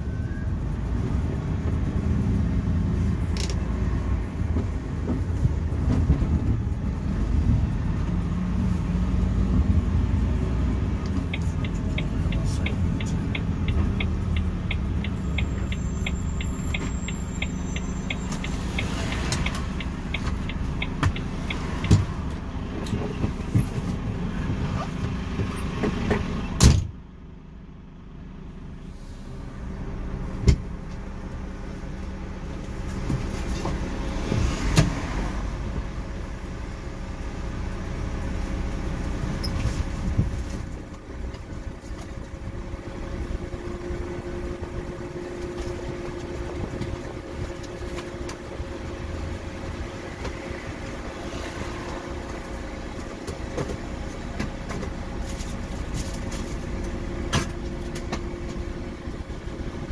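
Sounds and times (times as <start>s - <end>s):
road noise: 0.0s - 59.9s
truck diesel engine: 0.0s - 59.9s
light ticking: 11.0s - 22.0s.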